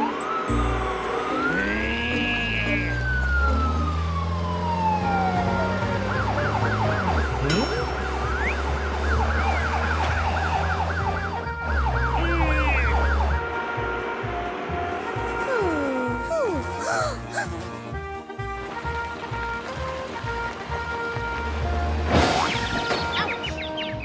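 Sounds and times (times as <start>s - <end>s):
police siren wailing: 0.0s - 13.9s, 14.7s - 17.8s.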